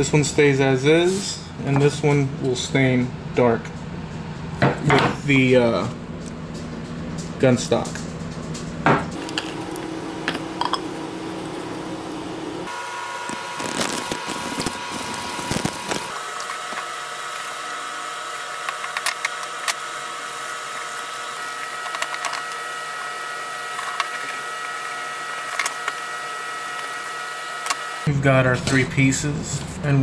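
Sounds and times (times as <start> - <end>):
hum of held tones: 9.2 - 28.1.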